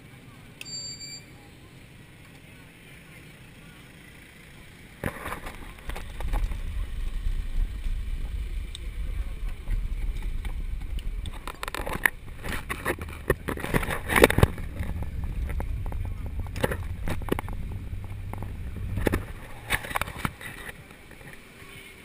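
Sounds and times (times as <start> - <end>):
bike rattles and knocks: 5.0 - 21.6
wind rumble on microphone: 5.4 - 21.4.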